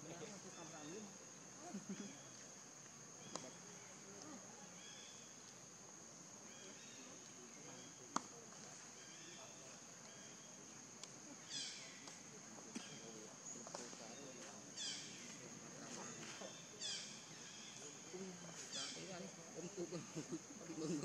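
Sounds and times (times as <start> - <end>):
forest insects droning: 0.0 - 21.0.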